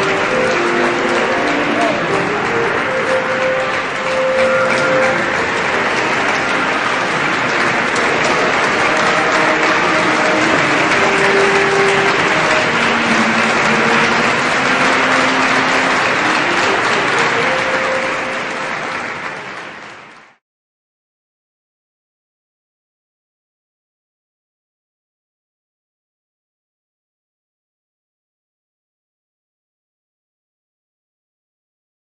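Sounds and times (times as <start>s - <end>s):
audience applauding: 0.0s - 20.4s.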